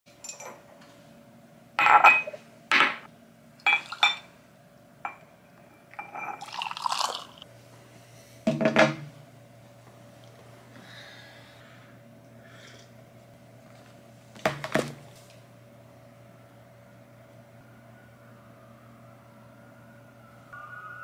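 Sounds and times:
ceramic mugs clinking on stone: 0:01.8 - 0:03.0, 0:03.7 - 0:04.3, 0:06.0 - 0:06.7
hot water pouring from kettle: 0:06.4 - 0:07.4.

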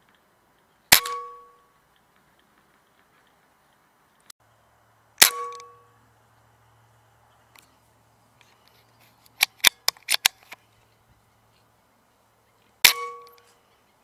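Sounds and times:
rifle shot with ringing: 0:00.9 - 0:01.6, 0:05.2 - 0:06.0, 0:12.8 - 0:13.5.

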